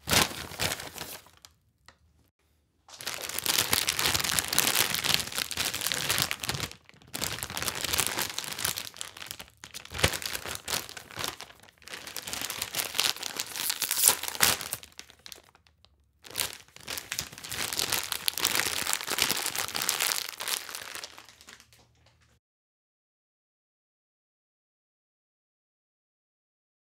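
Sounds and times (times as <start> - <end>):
bag being crumpled: 0.0 - 1.5, 2.9 - 15.6, 16.2 - 22.3.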